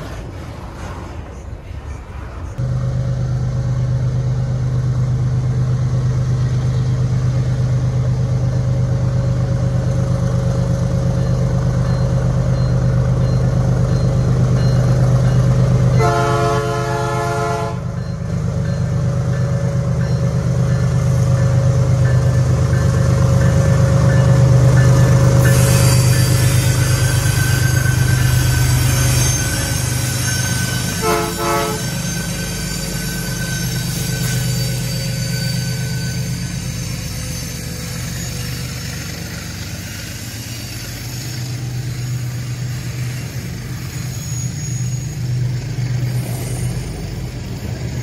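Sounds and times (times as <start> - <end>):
diesel locomotive engine running: 0.0 - 48.0
train horn blast: 15.9 - 17.9, 30.9 - 32.0.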